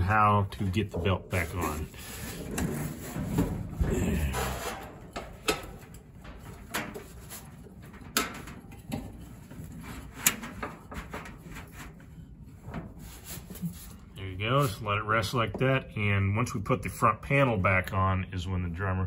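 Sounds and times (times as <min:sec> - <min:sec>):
soft rubbing: 0:09.2 - 0:14.9.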